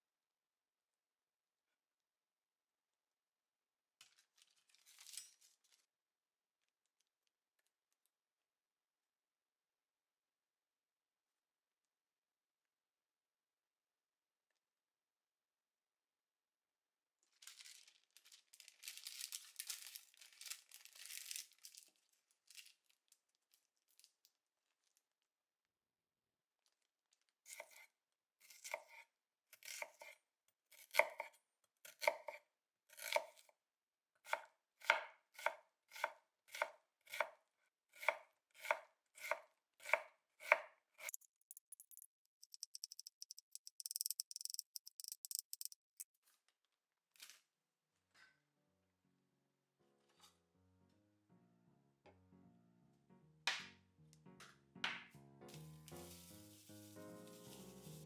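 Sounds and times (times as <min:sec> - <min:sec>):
knife cutting onion on board: 0:28.4 - 0:33.4, 0:34.3 - 0:37.3, 0:37.9 - 0:45.8.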